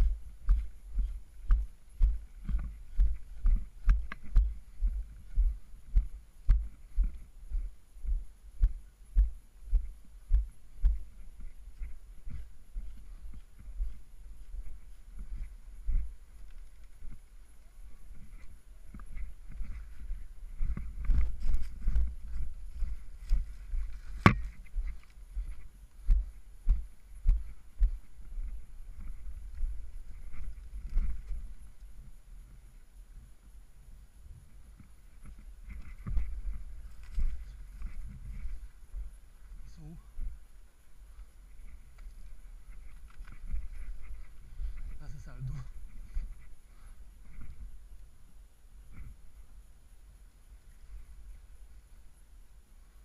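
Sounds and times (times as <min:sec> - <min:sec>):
footsteps jogging on gravel: 0:00.0 - 0:17.3, 0:18.1 - 0:31.6
footsteps on dry leaves and gravel: 0:09.7 - 0:32.1, 0:35.1 - 0:40.4, 0:41.2 - 0:47.8.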